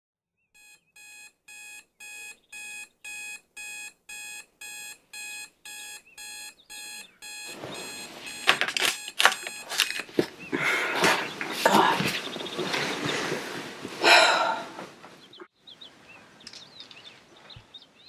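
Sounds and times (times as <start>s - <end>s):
alarm beeping: 0.6s - 10.1s
rustling: 7.4s - 15.3s.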